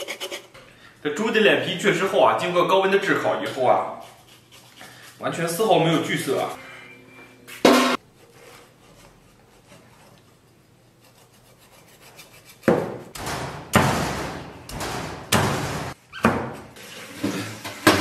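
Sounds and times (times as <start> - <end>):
cleaver rasping through flesh: 10.9 - 12.7.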